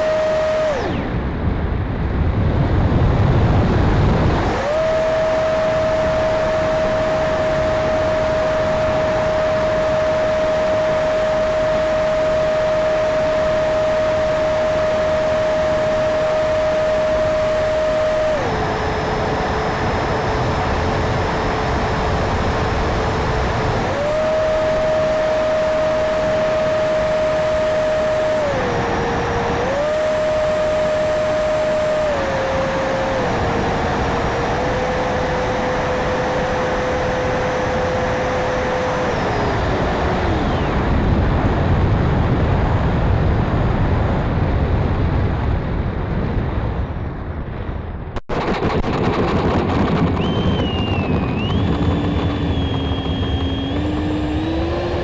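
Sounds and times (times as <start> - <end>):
electric fan high whine: 0.0 - 55.0
wind rush: 0.0 - 55.0
low rumble: 40.4 - 55.0.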